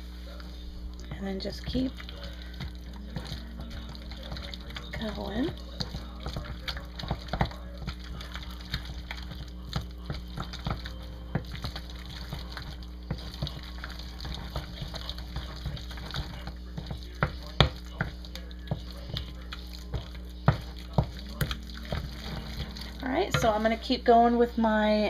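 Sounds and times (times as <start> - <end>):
low hum: 0.0 - 25.0
dough squelching: 0.3 - 25.0
spoon knocking on glass bowl: 23.3 - 23.6.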